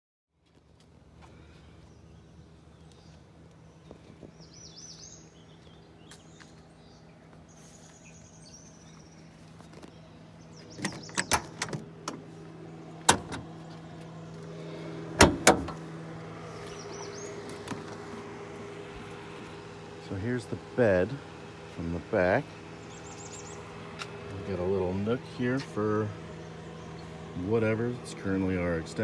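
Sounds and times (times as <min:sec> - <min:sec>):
birds chirping faintly: 0:00.4 - 0:29.0
van door clunks: 0:10.6 - 0:12.3, 0:13.0 - 0:13.8, 0:15.1 - 0:15.8.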